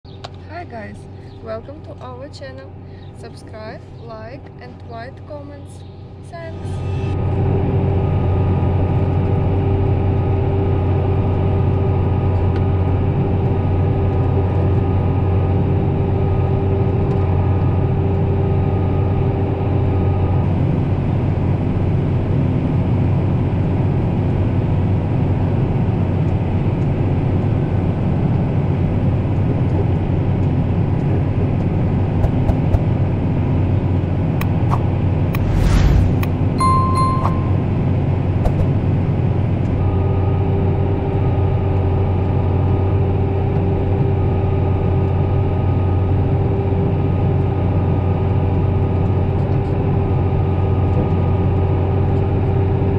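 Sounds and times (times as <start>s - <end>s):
high steady whine: 6.0s - 12.4s, 34.4s - 37.7s.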